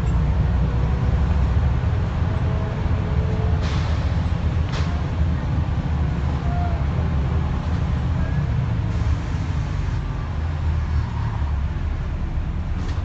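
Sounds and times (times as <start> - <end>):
bus diesel engine rumbling: 0.0 - 13.0
tyres hissing on wet road: 8.8 - 11.2.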